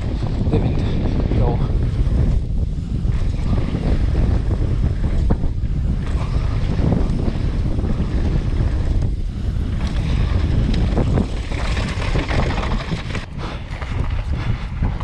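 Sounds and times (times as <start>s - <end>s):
wind buffeting microphone: 0.0s - 15.0s
tyre noise on dirt: 6.0s - 15.0s
knocks and rattles: 9.8s - 14.2s.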